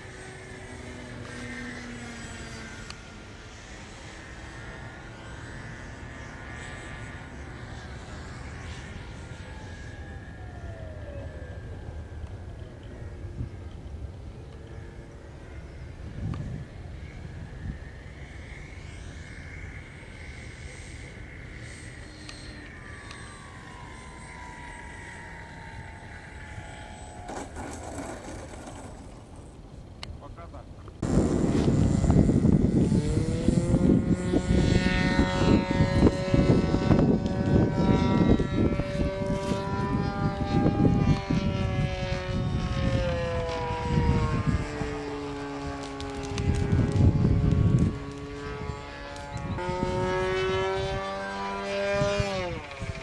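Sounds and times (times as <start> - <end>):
model airplane motor whining: 0.0 - 53.0
wind rumble: 0.0 - 53.0.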